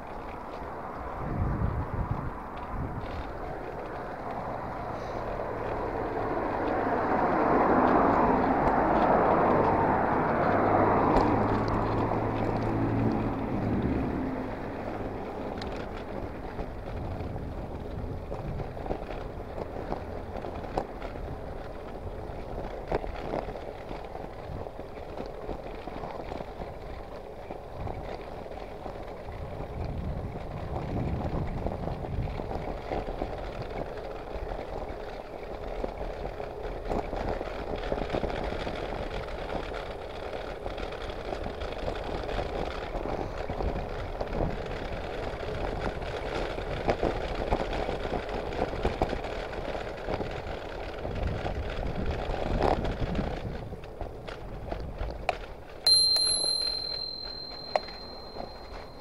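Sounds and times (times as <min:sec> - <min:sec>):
bicycle tyre road noise: 0:00.0 - 0:59.0
sharp bicycle clicks: 0:14.8 - 0:59.0.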